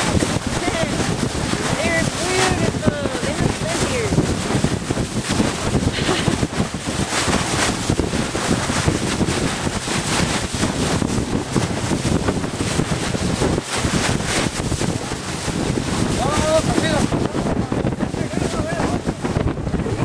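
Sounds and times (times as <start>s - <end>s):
sea washing around boat: 0.0s - 20.0s
wind buffeting microphone: 0.0s - 20.0s.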